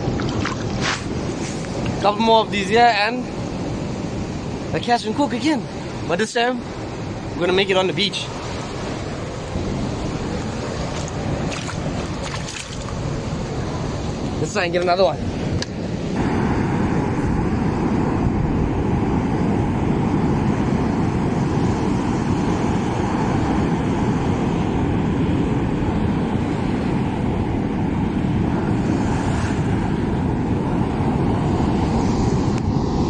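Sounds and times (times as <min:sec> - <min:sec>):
ocean surf on rocks: 0:00.0 - 0:33.0
wind buffeting microphone: 0:06.8 - 0:33.0.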